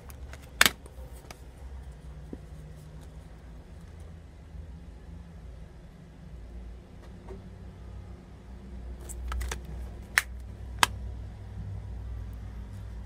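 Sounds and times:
plastic case clicking shut: 0.2 - 0.9, 9.0 - 11.0.

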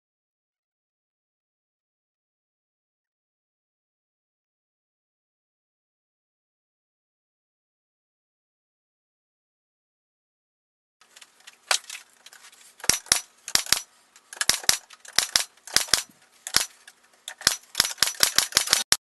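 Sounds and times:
pneumatic nailer firing: 12.8 - 13.8, 14.4 - 19.0.

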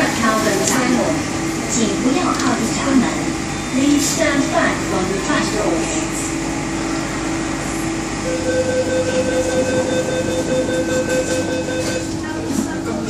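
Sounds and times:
low hum in train car: 0.0 - 13.0
door-closing warning beep: 8.3 - 12.2.

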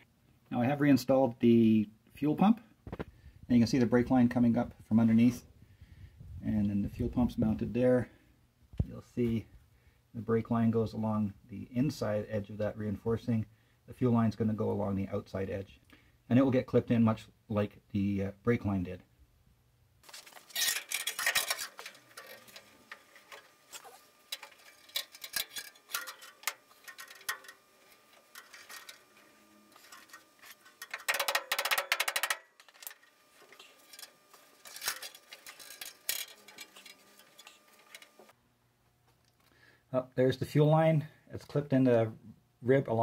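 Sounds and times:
metal scraping: 20.0 - 38.4.

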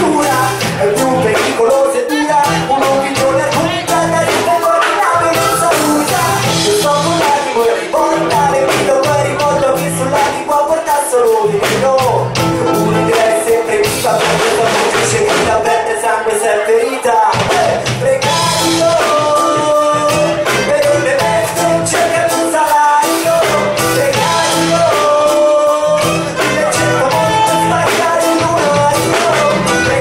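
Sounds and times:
bass guitar: 0.0 - 30.0
drum kit beat: 0.0 - 30.0
keyboards: 0.0 - 30.0
person singing: 0.0 - 30.0
saxophone: 2.2 - 6.8, 18.2 - 21.9, 23.0 - 30.0.

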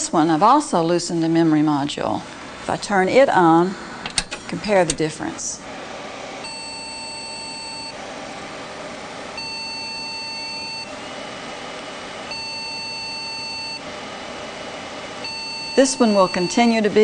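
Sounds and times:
computer long beeps: 6.4 - 8.0, 9.4 - 10.9, 12.3 - 13.8, 15.2 - 16.6
faint steady hum: 6.4 - 17.0.

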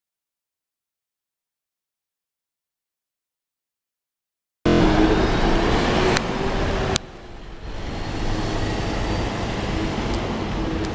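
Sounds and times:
bus cooling fan drone: 4.7 - 10.9
street traffic noise: 4.7 - 10.9.

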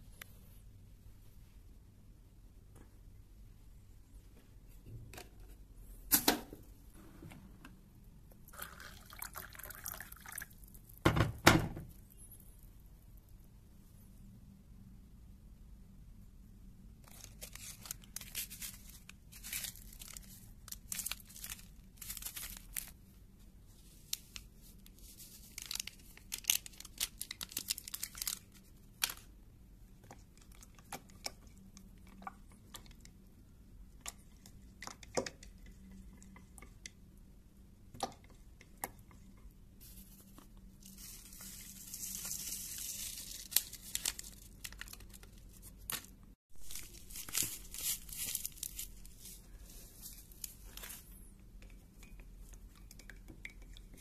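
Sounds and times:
paper rustling: 17.0 - 23.0, 39.8 - 51.2
paper sachets crinkling and tearing: 17.0 - 23.0, 24.1 - 29.3, 40.8 - 51.2.

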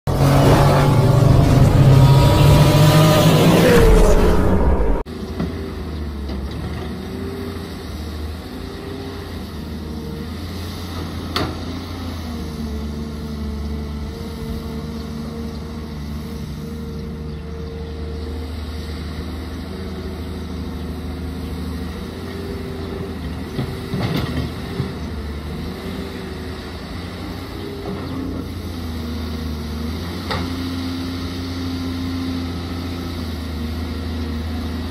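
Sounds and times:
excavator diesel engine running: 0.1 - 34.9.

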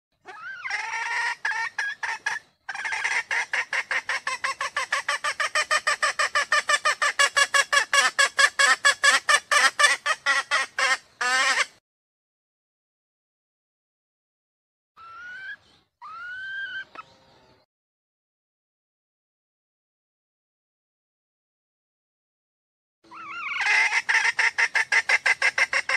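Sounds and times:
hen calling and clucking: 0.2 - 11.8, 15.0 - 17.6, 23.1 - 25.9.

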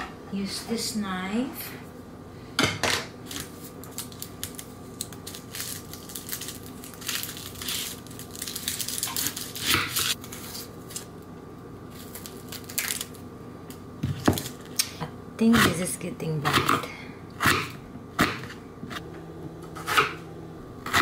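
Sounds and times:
onion skin peeling: 3.2 - 11.1, 11.9 - 13.2
knife cutting onion on board: 16.4 - 16.8, 17.4 - 19.0, 19.6 - 20.2, 20.8 - 21.0.

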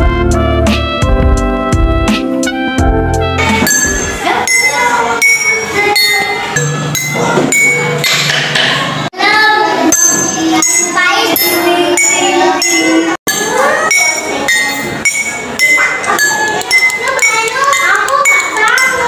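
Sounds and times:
glass tumblers clinking: 9.9 - 19.0.

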